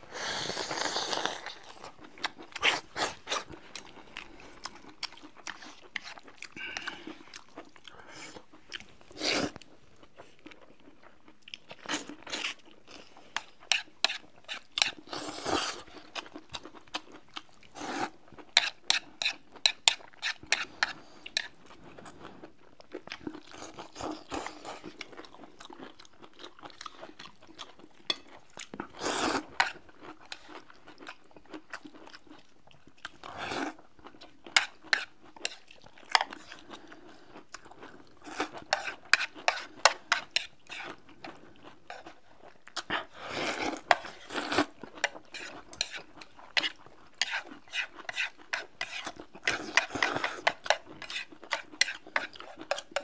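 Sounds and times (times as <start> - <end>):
people slurping noodles: 0.1 - 1.7
chewing with wet mouth clicks: 1.4 - 15.2, 18.3 - 33.3.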